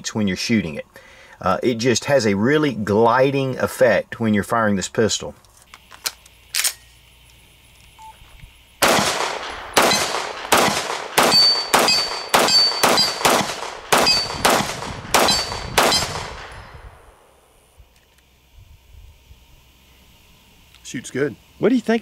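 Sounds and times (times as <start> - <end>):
pistol shots with echo: 8.8 - 17.3
bullet ringing on steel plate: 9.4 - 14.6, 15.2 - 16.8.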